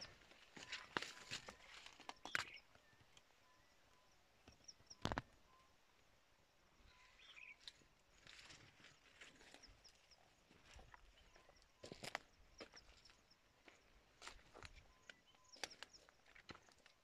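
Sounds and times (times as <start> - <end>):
faint bird chirps: 0.0 - 17.0
footsteps crunching dry leaves: 0.1 - 2.4.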